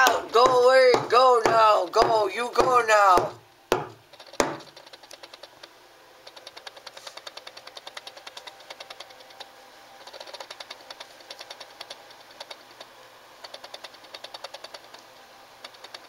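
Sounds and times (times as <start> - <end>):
animal scratching inside wall: 4.0 - 16.0.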